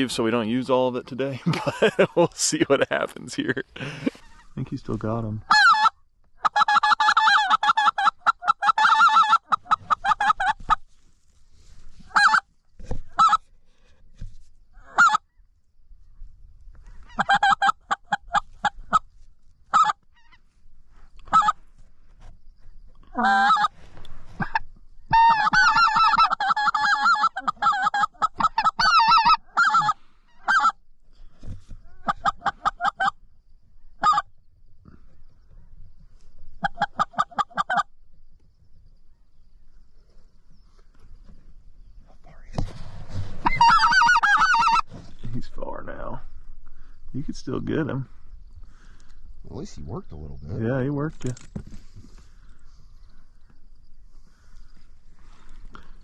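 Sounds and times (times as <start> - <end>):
goose call honks and clucks: 5.4 - 10.8, 12.0 - 12.5, 13.1 - 13.5, 14.8 - 15.3, 16.9 - 19.1, 19.7 - 20.4, 21.2 - 21.6, 23.0 - 23.8, 24.4 - 30.8, 31.9 - 33.2, 34.0 - 34.3, 36.6 - 37.9, 43.4 - 45.0.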